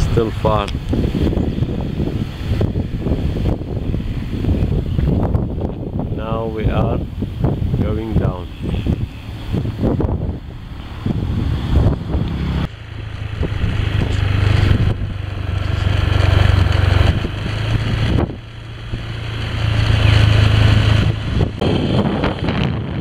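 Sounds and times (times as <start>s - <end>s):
motorcycle engine running: 0.0s - 23.0s
wind and road noise: 0.0s - 23.0s.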